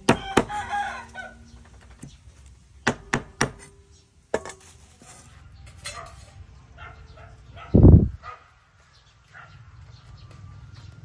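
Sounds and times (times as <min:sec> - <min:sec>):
sharp knocks on hard surface: 0:02.8 - 0:03.7.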